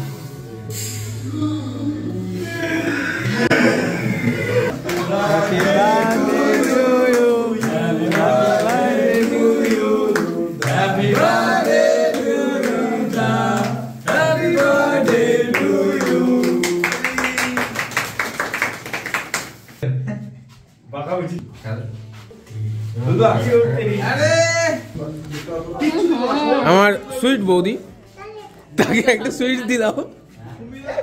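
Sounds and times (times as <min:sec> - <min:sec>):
instrumental backing: 0:02.4 - 0:16.7, 0:19.8 - 0:26.3
man singing: 0:04.7 - 0:17.4.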